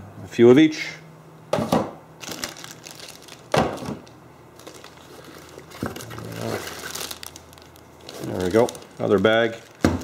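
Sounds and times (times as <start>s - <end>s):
plastic packaging crinkling: 2.2s - 10.0s
fabric bag rustling: 4.6s - 9.8s.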